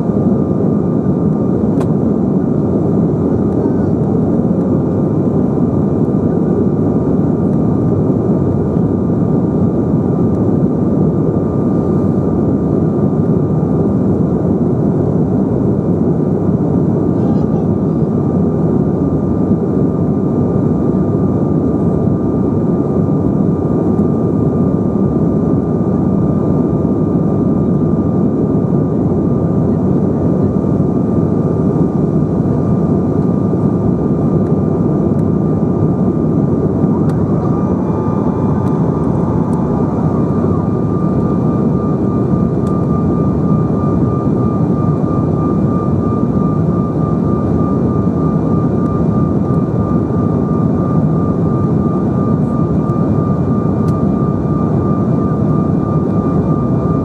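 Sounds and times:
thin steady whine: 0.0s - 57.0s
aircraft cabin rushing hum: 0.1s - 8.9s, 29.6s - 55.0s.

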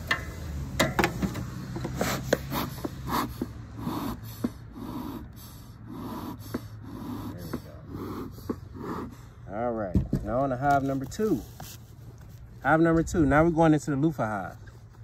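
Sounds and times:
metallic clicks and knocks: 0.0s - 2.0s
bellows puffing air: 1.4s - 9.6s.

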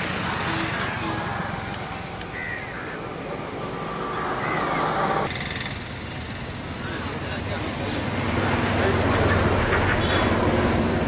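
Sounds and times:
steady background noise: 0.0s - 11.0s
birds calling: 1.8s - 3.1s, 4.1s - 5.8s.

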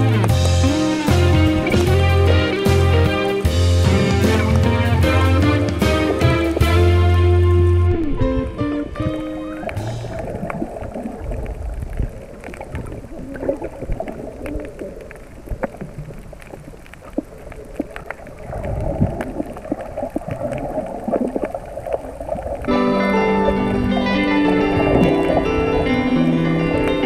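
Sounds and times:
underwater clicks and crackles: 0.0s - 0.6s, 7.4s - 22.8s, 23.6s - 26.0s
muffled underwater movement: 0.0s - 27.0s.

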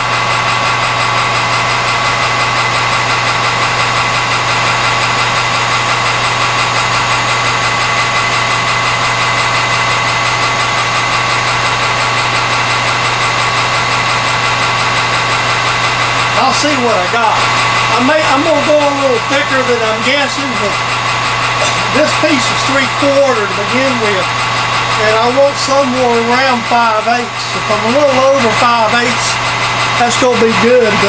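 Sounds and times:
metal lathe running: 0.0s - 31.0s.

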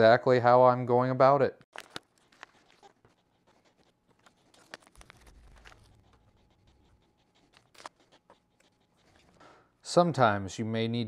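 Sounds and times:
paper seed packet rustling: 1.7s - 3.1s, 4.1s - 6.3s.

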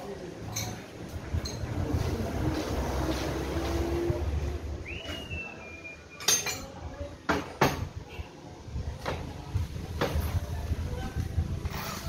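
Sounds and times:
metal clinks and knocks: 0.5s - 1.8s.

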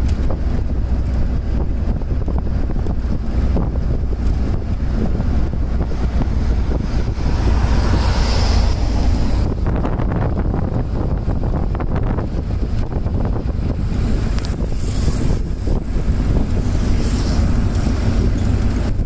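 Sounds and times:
vehicle road rumble: 0.0s - 19.0s
wind buffeting microphone: 0.0s - 19.0s
oncoming vehicle passing: 4.2s - 12.7s, 13.3s - 19.0s.

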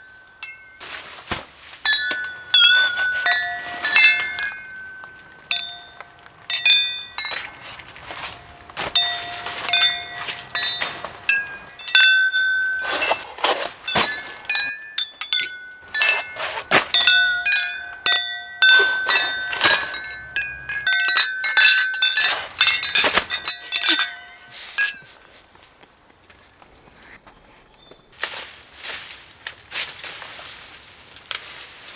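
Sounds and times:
glasses clinking: 0.0s - 1.0s, 1.8s - 25.2s.

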